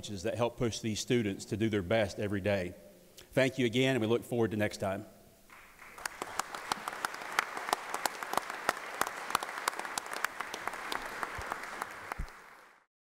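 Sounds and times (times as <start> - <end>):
crowd applauding: 5.5 - 12.9.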